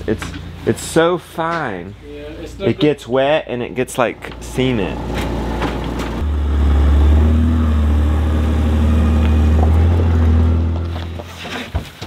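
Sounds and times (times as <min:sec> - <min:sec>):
vehicle engine idling: 0:03.8 - 0:11.2.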